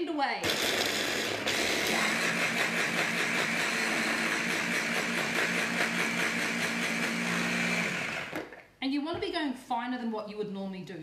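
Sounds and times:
small blender running: 0.4s - 8.6s.

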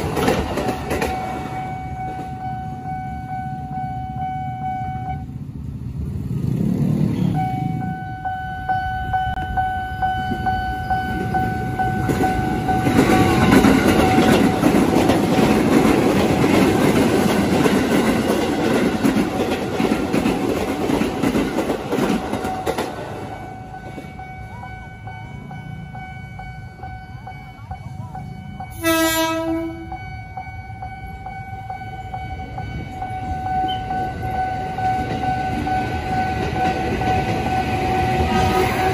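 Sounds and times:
train wheels clattering: 0.0s - 2.4s, 11.0s - 24.3s
level crossing warning tone: 0.0s - 5.3s, 7.2s - 38.9s
train horn blast: 28.7s - 30.1s.

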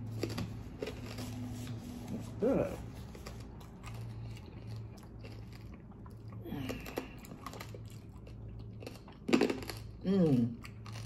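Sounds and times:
crunch: 0.0s - 1.3s, 3.1s - 10.0s, 10.6s - 11.0s
chewing food: 0.0s - 1.5s, 2.7s - 11.0s.

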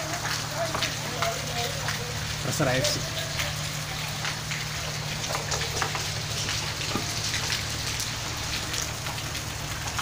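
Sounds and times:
steady rain falling: 0.0s - 10.0s
water dripping: 0.0s - 10.0s.

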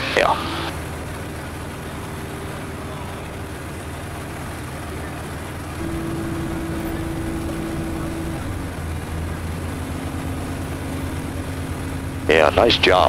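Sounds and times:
propeller engine drone: 0.0s - 13.0s
steady higher tone: 5.8s - 12.4s.

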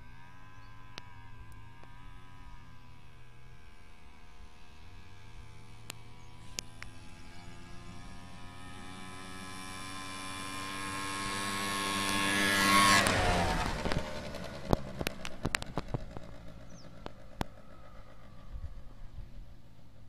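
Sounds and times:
motorized wheelbarrow engine passing: 0.0s - 20.0s.

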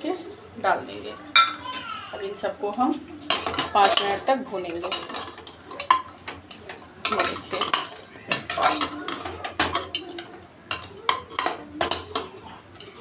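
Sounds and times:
metal spoon scraping a pot: 3.1s - 13.0s.

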